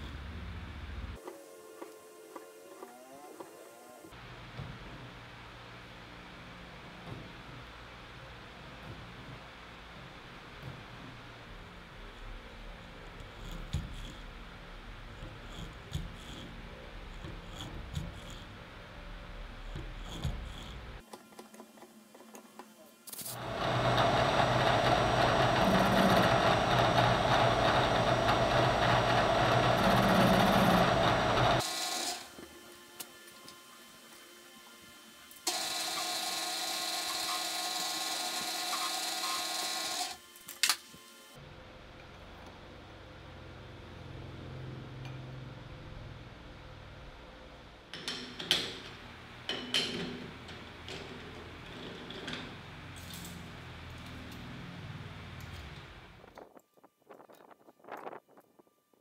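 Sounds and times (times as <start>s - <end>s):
drill bit cutting steel hiss: 23.1s - 33.4s, 35.3s - 41.3s
broach scraping metal: 23.2s - 32.3s
loud machine running: 23.4s - 32.3s, 35.5s - 40.2s.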